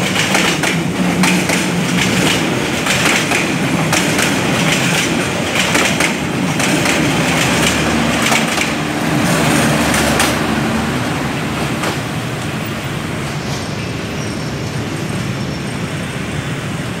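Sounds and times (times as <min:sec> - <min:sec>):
train wheels clattering over rail joints: 0:00.0 - 0:10.6.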